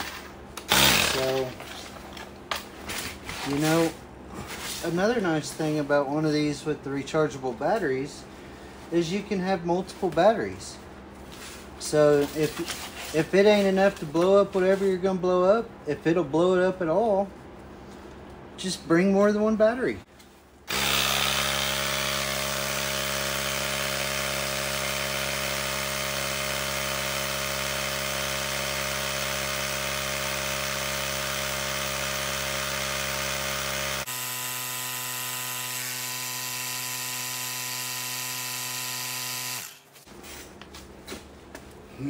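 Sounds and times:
small air compressor running: 0.7 - 1.5, 20.7 - 39.9.

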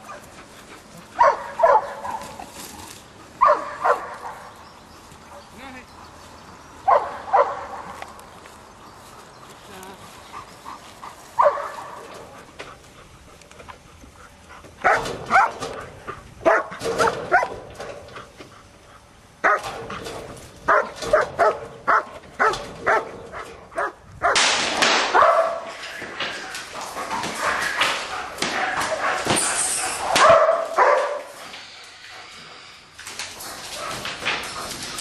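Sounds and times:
dog barking: 1.2 - 2.2, 3.4 - 4.4, 6.9 - 8.0, 11.4 - 12.1, 14.8 - 15.5, 16.4 - 17.5, 19.4 - 19.7, 20.7 - 23.1, 23.8 - 24.4, 25.1 - 25.7, 30.1 - 31.3.

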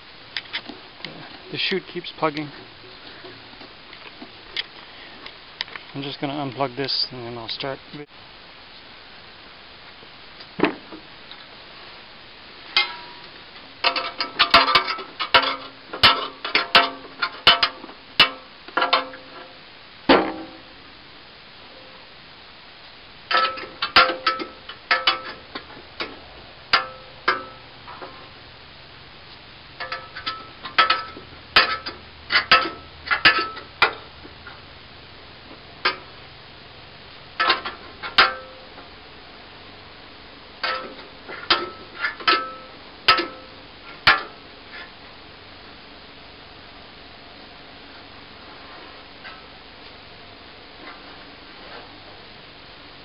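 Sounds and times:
debris rattling against metal: 13.8 - 20.7, 23.3 - 28.3, 29.8 - 34.6, 37.4 - 38.7.

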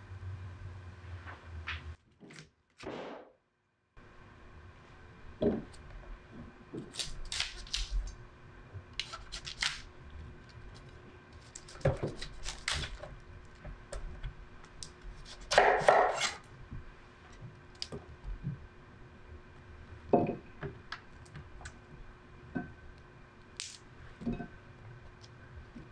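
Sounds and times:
knife cutting cauliflower: 9.0 - 9.9, 11.4 - 13.0, 15.1 - 16.4.

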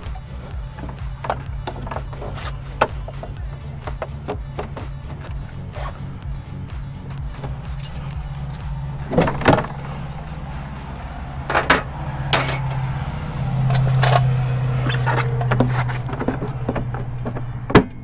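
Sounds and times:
low hum: 0.0 - 18.0
metallic clinks of hand tools: 7.6 - 10.4.

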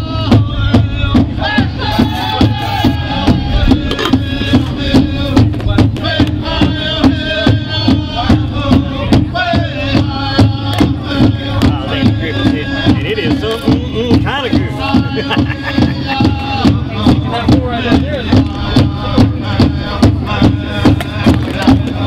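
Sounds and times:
music with steady beat and melody: 0.0 - 22.0.

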